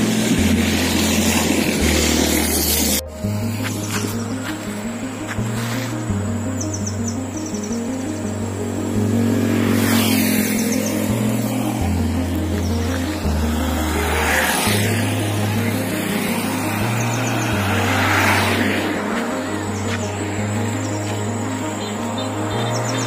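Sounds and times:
instrumental background music: 0.0 - 23.0
vehicles passing on road: 0.0 - 23.0.

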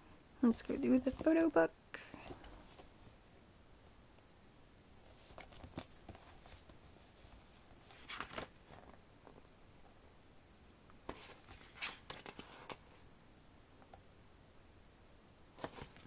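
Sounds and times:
pages rustling and flipping: 5.0 - 9.5, 11.0 - 13.0, 15.6 - 16.0.

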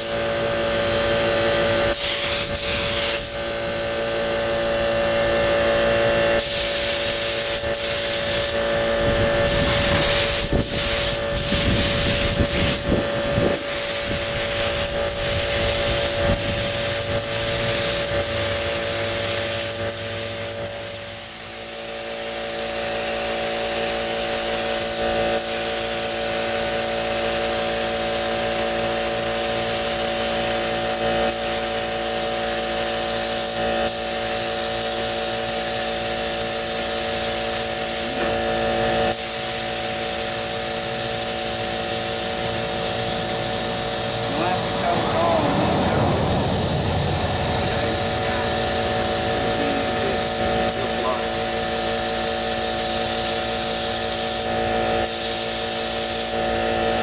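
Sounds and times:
paint spray gun hissing: 1.9 - 3.4, 6.4 - 8.6, 9.3 - 27.2, 28.0 - 38.2, 39.1 - 56.4
air compressor humming: 6.1 - 23.2, 37.2 - 54.4.

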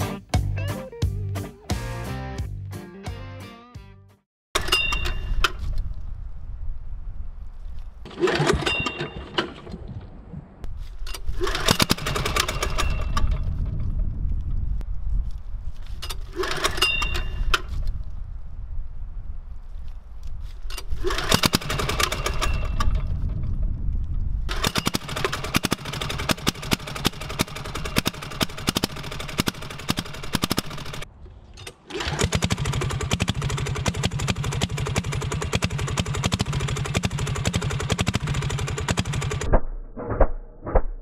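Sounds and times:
diesel engine knocking clatter: 32.5 - 39.5.

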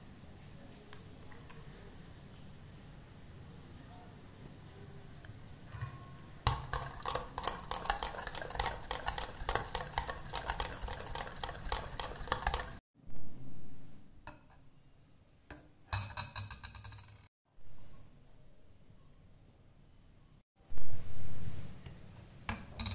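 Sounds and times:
whisk clinking against glass bowl: 5.7 - 12.8.

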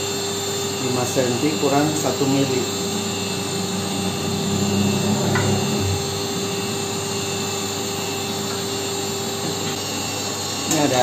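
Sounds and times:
motor humming: 0.1 - 10.4
low rubbing handling noise: 0.8 - 9.6.

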